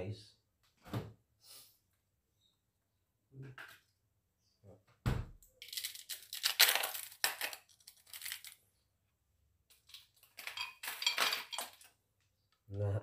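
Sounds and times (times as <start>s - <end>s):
thump: 5.0s - 5.4s
ice cubes rattling into glass jar: 5.6s - 8.6s, 9.8s - 11.9s
plastic bag crinkling: 5.6s - 8.7s.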